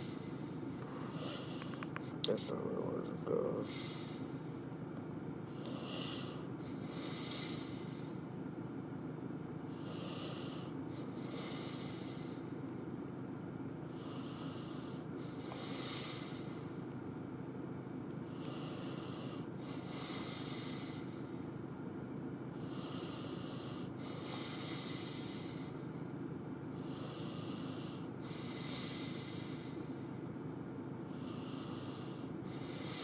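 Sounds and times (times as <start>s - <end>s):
person breathing: 0.0s - 2.0s, 2.8s - 4.4s, 5.5s - 8.2s, 9.7s - 12.5s, 13.9s - 16.8s, 18.3s - 21.5s, 22.6s - 25.9s, 26.8s - 30.2s, 31.1s - 33.0s
steady low hum: 0.0s - 33.0s.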